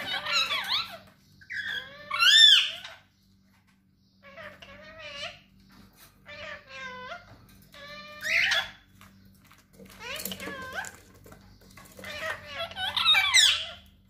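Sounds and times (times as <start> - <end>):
parrot high-pitched calls: 0.0 - 3.2, 4.2 - 5.6, 6.2 - 9.0, 9.9 - 11.2, 11.8 - 14.0.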